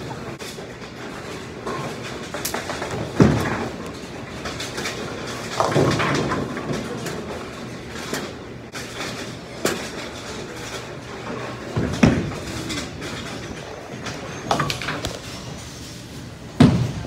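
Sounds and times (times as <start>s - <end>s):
bowling balls rolling: 0.0s - 17.0s
bowling pins crashing: 1.3s - 7.5s, 11.2s - 15.5s, 16.5s - 17.0s.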